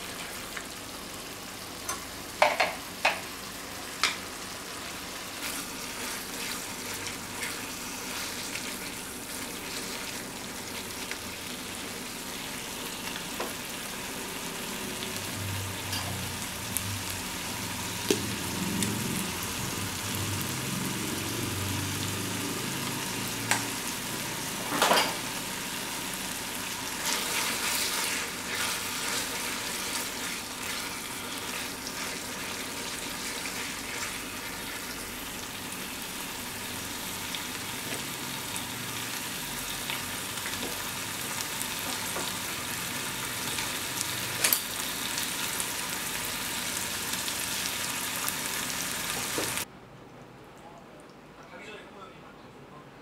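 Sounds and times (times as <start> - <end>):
pasta sizzling in a frying pan: 0.0 - 49.7.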